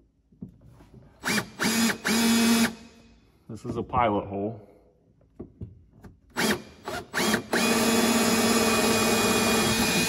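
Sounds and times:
cordless drill boring: 0:01.2 - 0:02.9, 0:06.3 - 0:10.0.

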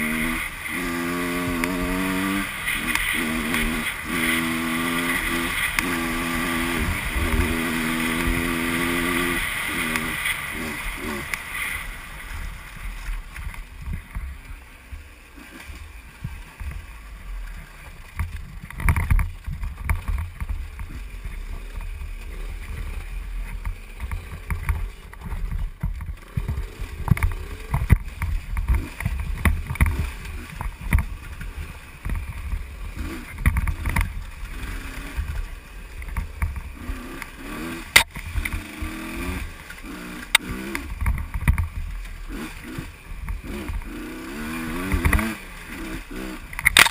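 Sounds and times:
motorcycle engine revving: 0:00.0 - 0:46.9
low thumps from bumpy ground: 0:12.9 - 0:17.0, 0:17.7 - 0:34.6
sharp clicks: 0:46.5 - 0:46.9.

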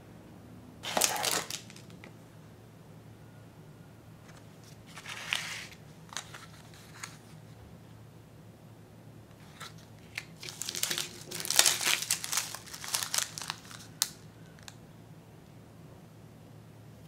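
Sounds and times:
plastic bags crinkling: 0:00.8 - 0:02.1, 0:09.7 - 0:14.8.

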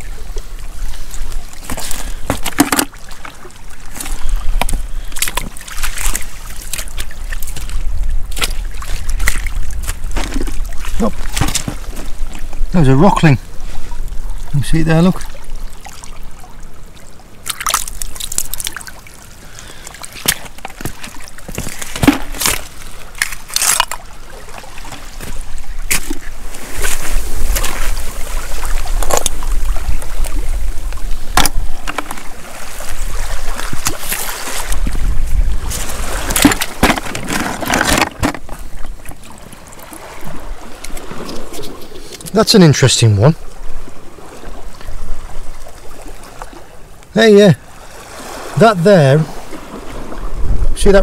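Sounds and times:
water splashing and trickling: 0:00.0 - 0:51.0
stones and seaweed knocking: 0:01.6 - 0:12.2, 0:20.1 - 0:24.0, 0:24.9 - 0:28.0, 0:31.3 - 0:32.3, 0:35.6 - 0:38.7.

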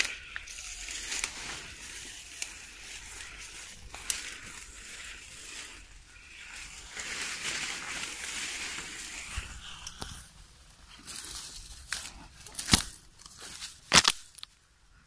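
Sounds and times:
twigs snapping: 0:00.0 - 0:04.6, 0:11.0 - 0:14.6
leaves and branches rustling: 0:00.0 - 0:14.7.

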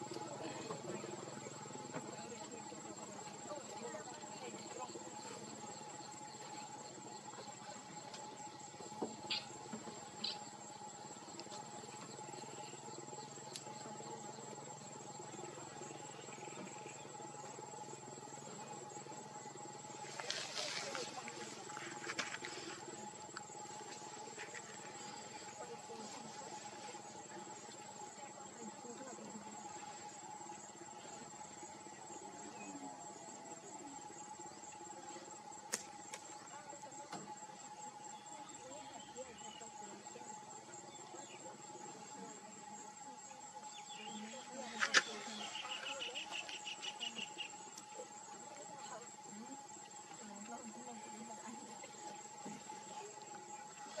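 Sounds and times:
insects high trill: 0:00.0 - 0:54.0
insects low buzz: 0:00.0 - 0:54.0
sharp click: 0:35.7 - 0:36.2
high-pitched insect trill: 0:37.4 - 0:54.0.

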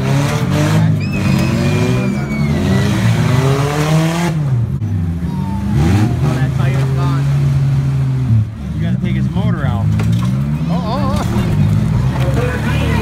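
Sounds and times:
car engines revving: 0:00.0 - 0:13.0
high squeal sliding downward: 0:01.0 - 0:03.2.

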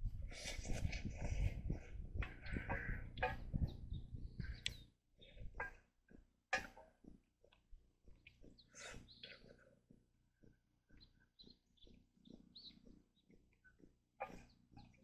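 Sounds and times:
faint bird chirps: 0:02.3 - 0:05.8, 0:08.1 - 0:15.0.

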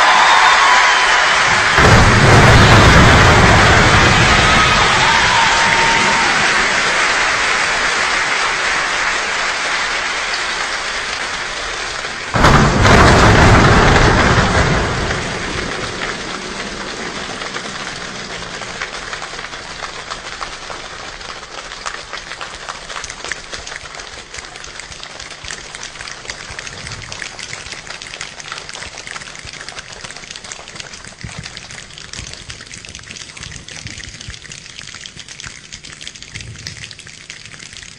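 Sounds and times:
loud deep burst: 0:00.0 - 0:07.8, 0:12.4 - 0:19.0
hands imitating rain patter: 0:16.2 - 0:37.9.

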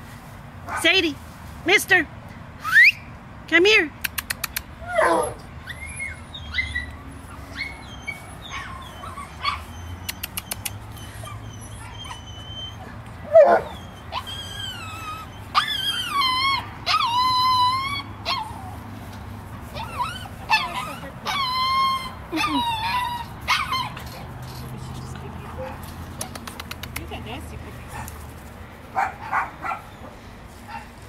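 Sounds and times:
dogs whining and yipping: 0:04.8 - 0:18.9, 0:19.6 - 0:24.3.

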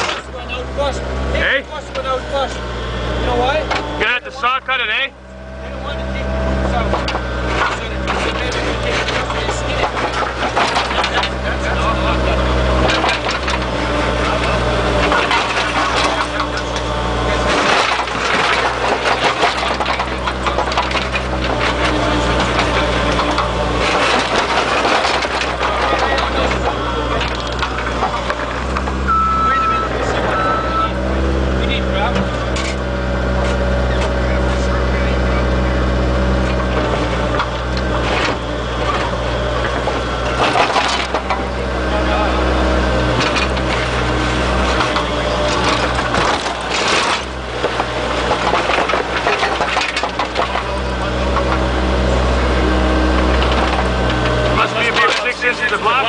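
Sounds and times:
diesel engine running: 0:00.0 - 0:56.0
bucket scraping asphalt: 0:06.6 - 0:56.0.

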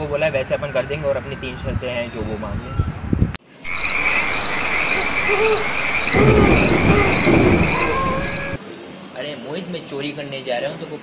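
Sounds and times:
crickets trilling: 0:03.5 - 0:11.0.

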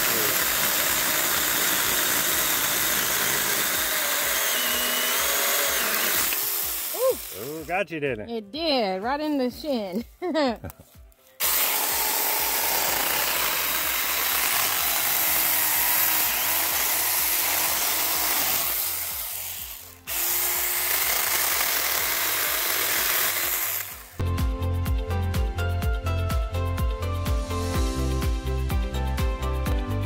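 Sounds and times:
mini chainsaw cutting wood: 0:00.0 - 0:07.7, 0:11.4 - 0:24.2
background music with steady beat: 0:06.3 - 0:16.0, 0:23.9 - 0:30.0.

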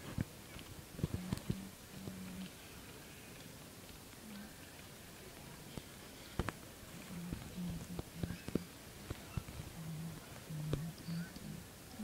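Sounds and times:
faint hubbub: 0:00.0 - 0:12.0.

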